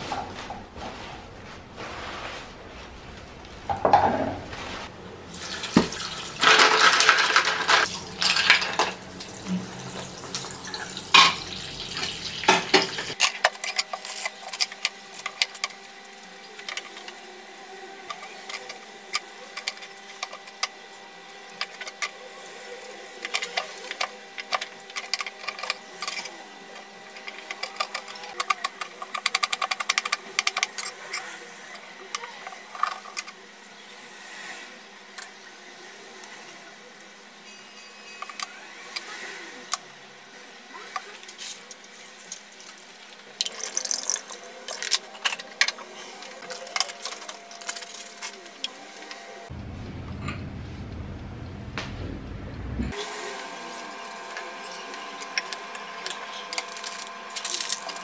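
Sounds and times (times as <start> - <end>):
steady hum: 2.4 - 58.0
water at a rolling boil: 4.9 - 51.9, 52.9 - 58.0
low rumble of heating water: 7.9 - 13.2, 49.5 - 55.6.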